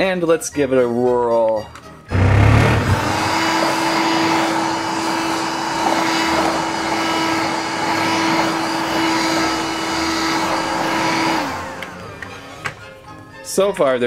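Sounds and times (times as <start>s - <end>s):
street sweeper motor humming: 2.1s - 12.9s
hiss: 3.2s - 11.7s.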